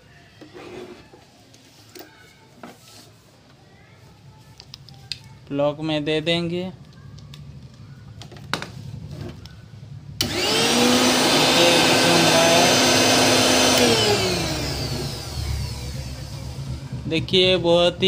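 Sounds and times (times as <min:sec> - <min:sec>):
mixer grinder motor whining: 0:10.2 - 0:17.2.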